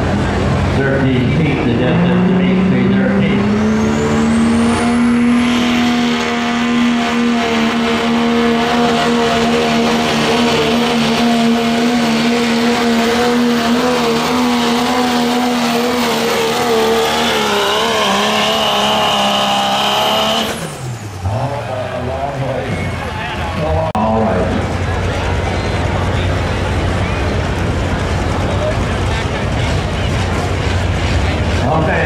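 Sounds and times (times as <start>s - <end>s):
diesel engine at full throttle: 0.0s - 32.0s
high turbo whine: 0.0s - 32.0s.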